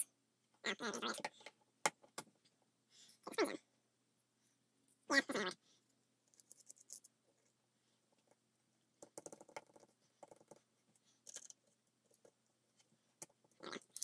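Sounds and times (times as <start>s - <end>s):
small parts clicking and scratching: 5.8s - 14.0s.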